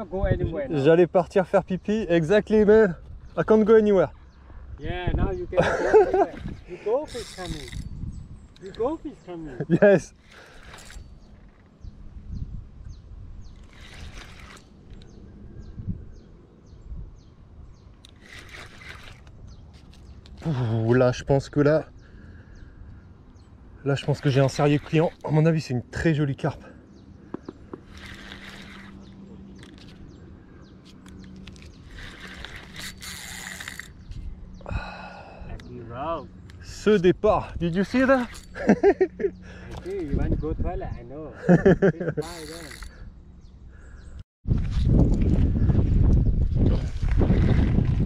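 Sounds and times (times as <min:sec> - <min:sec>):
wind buffeting microphone: 0:01.7 - 0:21.3, 0:26.9 - 0:48.0
bird chirping: 0:05.9 - 0:44.2
fishing reel ticking and whirring: 0:06.4 - 0:08.0, 0:10.1 - 0:11.6, 0:13.5 - 0:15.2, 0:18.0 - 0:20.4, 0:24.1 - 0:25.3, 0:27.7 - 0:30.2, 0:30.9 - 0:34.2, 0:37.6 - 0:40.2, 0:42.2 - 0:43.1.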